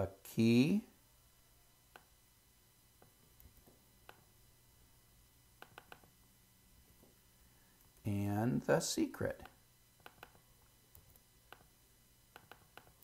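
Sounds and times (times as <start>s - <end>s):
mouse and keyboard clicks: 5.6s - 6.1s, 9.4s - 11.7s, 12.3s - 13.0s.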